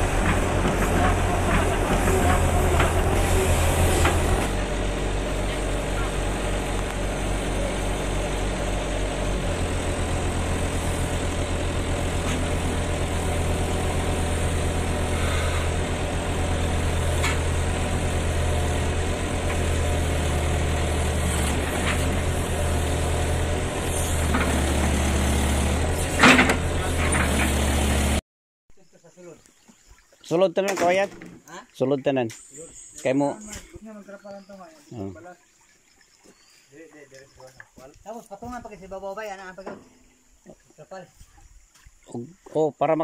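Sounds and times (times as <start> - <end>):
excavator diesel engine running: 0.0 - 28.2.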